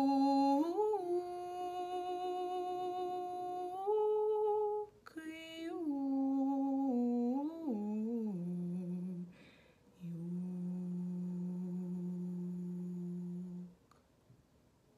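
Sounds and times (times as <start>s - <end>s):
woman humming a lullaby: 0.0s - 9.3s, 10.0s - 13.8s
breath: 9.3s - 9.9s.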